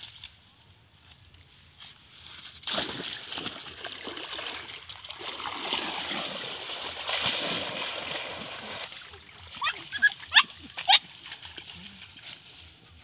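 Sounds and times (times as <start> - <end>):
dog splashing through water: 2.6 - 12.2.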